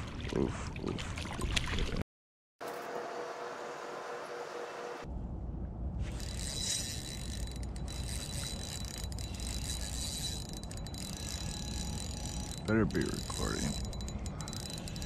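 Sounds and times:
low steady rumble: 5.1s - 15.0s
fishing reel whirring: 6.0s - 15.0s.

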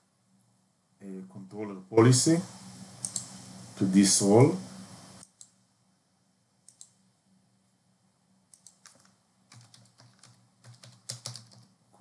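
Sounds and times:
keyboard typing: 3.0s - 3.3s, 6.7s - 7.0s, 8.5s - 11.8s
mouse clicks: 3.0s - 3.4s, 5.2s - 5.6s, 6.7s - 7.0s, 8.5s - 9.1s.

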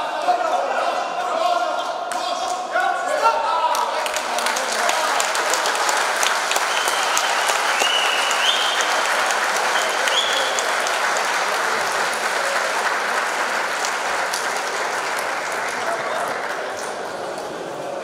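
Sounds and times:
crowd applauding and cheering: 3.7s - 18.0s
short high whistles: 6.7s - 8.9s, 9.8s - 10.7s.

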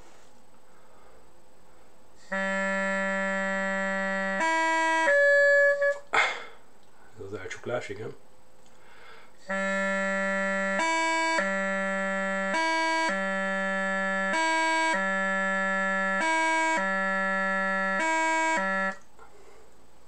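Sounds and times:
bagpipe practice chanter notes: 2.2s - 6.1s, 9.4s - 19.0s.

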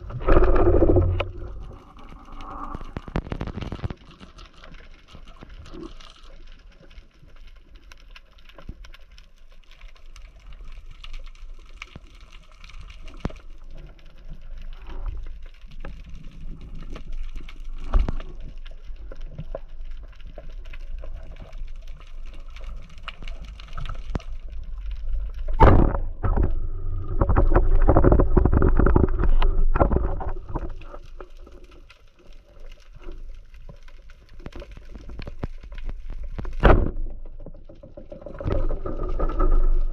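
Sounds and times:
crackling hissy water background: 0.0s - 39.9s.

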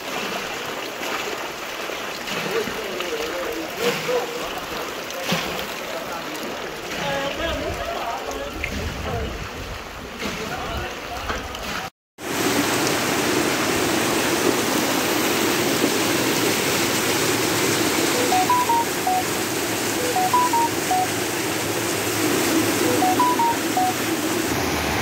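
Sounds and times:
floodwater rushing down a street: 0.0s - 25.0s
electronic beeping tune: 18.2s - 19.4s, 20.0s - 21.2s, 22.8s - 24.1s.

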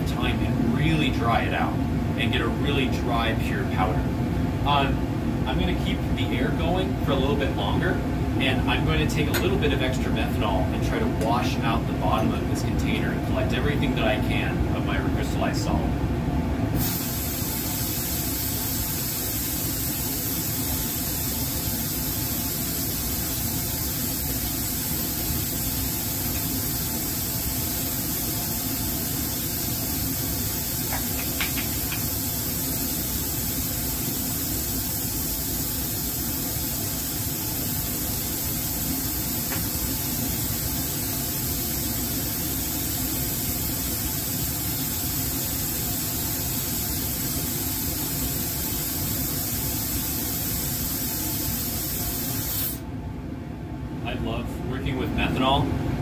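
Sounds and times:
hiss of air under vacuum: 16.7s - 52.9s.

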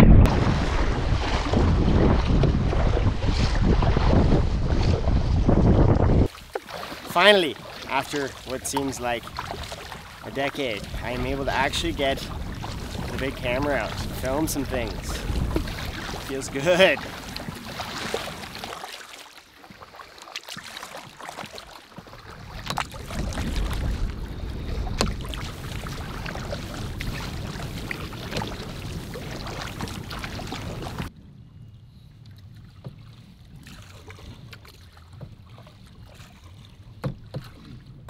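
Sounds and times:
wind rumbling on microphone: 0.0s - 6.3s, 7.6s - 18.7s, 22.0s - 38.0s
paddle knocking against hull: 0.2s - 5.0s, 14.9s - 19.0s, 19.6s - 24.1s, 24.7s - 31.1s, 34.5s - 37.9s
paddle strokes splashing: 0.3s - 31.1s, 32.3s - 38.0s.

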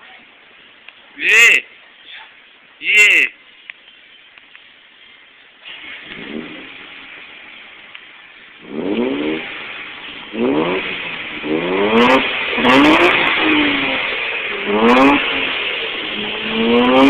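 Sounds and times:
car engine idling: 0.0s - 17.0s
engine revving: 5.6s - 7.6s, 8.6s - 17.0s.

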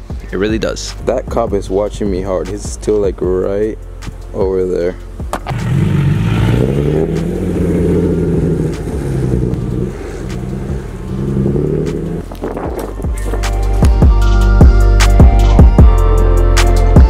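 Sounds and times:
car engine accelerating: 5.3s - 12.5s.

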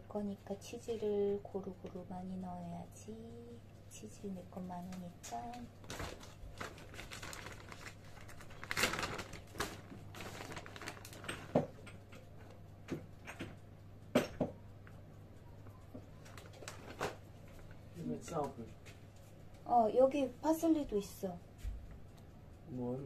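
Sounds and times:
plastic bag crinkling: 5.8s - 11.8s, 16.2s - 17.2s.

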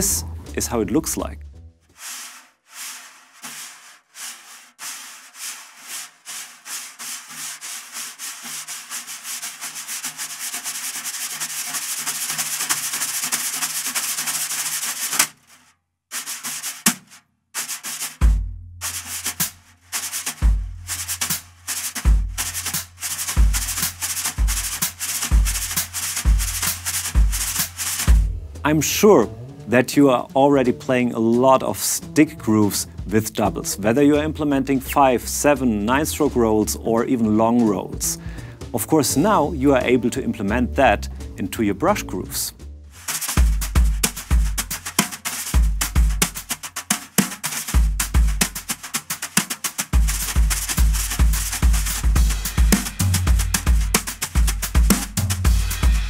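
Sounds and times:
bass drum beats: 0.0s - 1.9s, 18.2s - 19.6s, 20.3s - 46.8s, 47.7s - 48.9s, 49.9s - 56.0s
wire brushes on snare drum: 1.9s - 28.3s, 28.9s - 40.6s, 42.9s - 56.0s.

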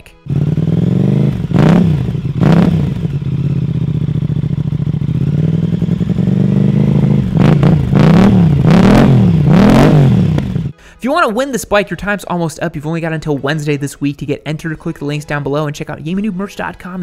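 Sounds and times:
motorcycle idling: 0.2s - 10.8s.

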